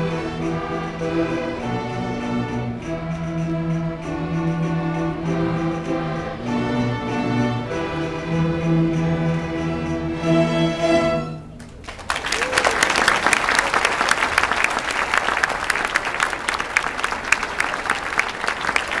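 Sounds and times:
string orchestra chord: 0:00.0 - 0:11.6
audience applause: 0:11.6 - 0:19.0.

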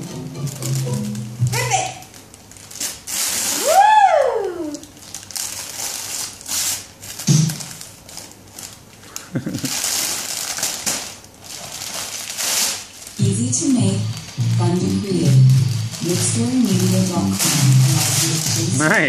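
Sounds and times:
wrapping paper crinkling and tearing: 0:00.4 - 0:01.4, 0:02.0 - 0:19.0
toddler vocal sounds: 0:03.6 - 0:04.9.

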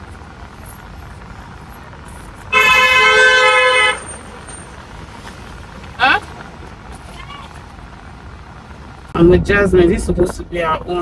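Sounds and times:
car horn two-tone blast: 0:02.5 - 0:04.2.

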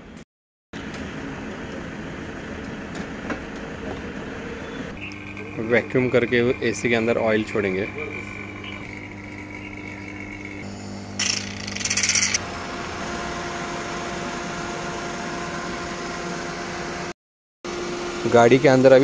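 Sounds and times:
vacuum pump humming: 0:03.6 - 0:17.1, 0:17.7 - 0:19.0.

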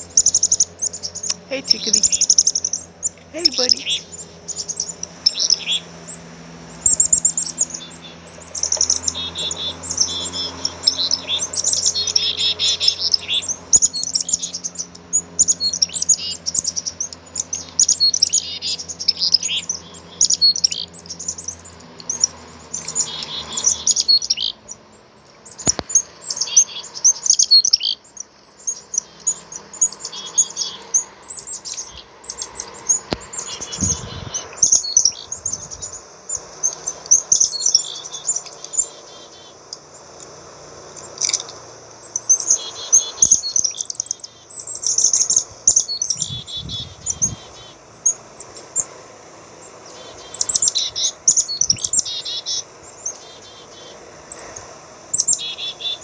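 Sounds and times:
chickadees chirping: 0:00.0 - 0:56.0.

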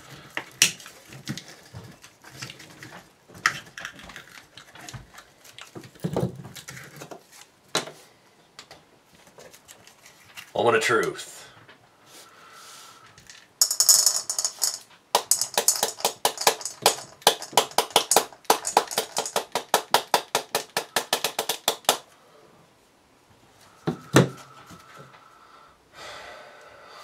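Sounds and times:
small pellets rattling into bowl: 0:13.2 - 0:21.8.

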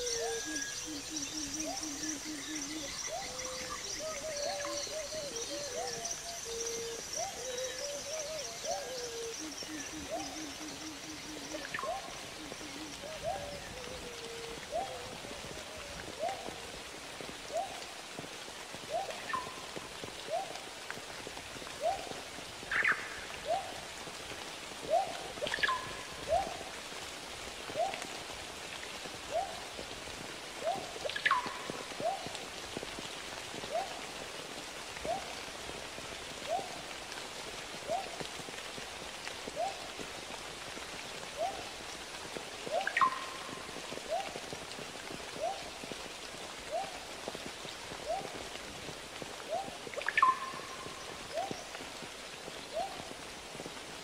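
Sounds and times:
bird whistled calls: 0:00.0 - 0:13.9, 0:50.0 - 0:51.6
river water rushing: 0:30.6 - 0:52.1.

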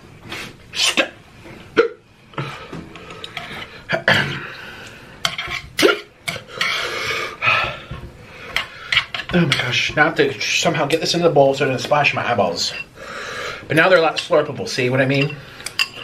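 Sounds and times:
person hiccupping: 0:01.8 - 0:02.1, 0:05.8 - 0:06.5.

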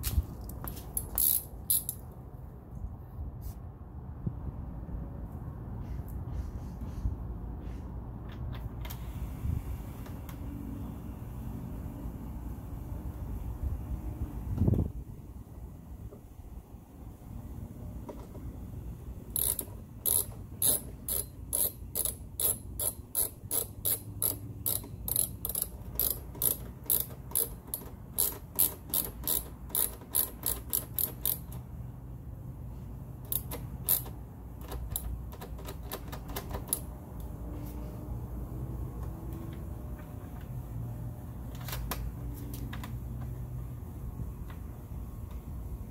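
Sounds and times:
hand ratchet clicking: 0:00.7 - 0:02.1, 0:19.3 - 0:31.7, 0:33.3 - 0:36.9.

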